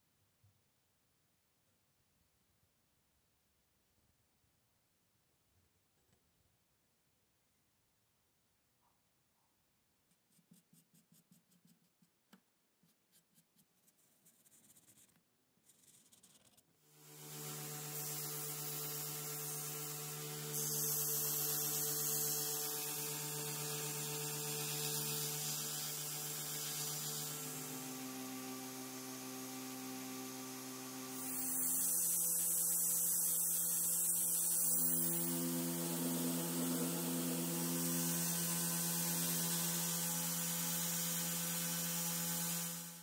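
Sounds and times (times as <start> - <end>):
faint rubbing strokes: 12.8 - 16.6
belt grinder motor humming: 17.0 - 43.0
cleaning block hissing on belt: 31.2 - 40.2.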